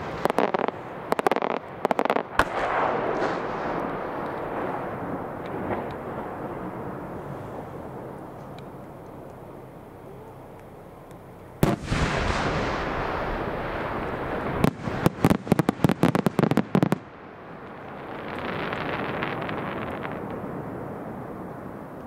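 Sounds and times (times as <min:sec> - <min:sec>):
rapid sharp firework bangs: 0:00.0 - 0:06.7, 0:11.6 - 0:17.1.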